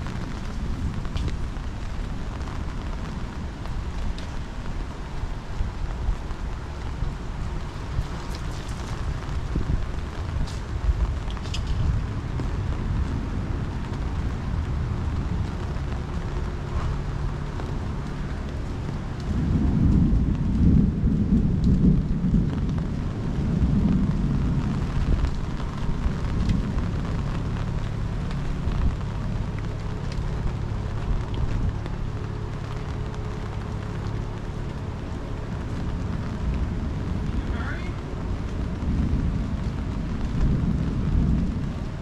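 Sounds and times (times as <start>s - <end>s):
rain falling: 0.0s - 42.0s
thunder rumbling: 0.0s - 42.0s.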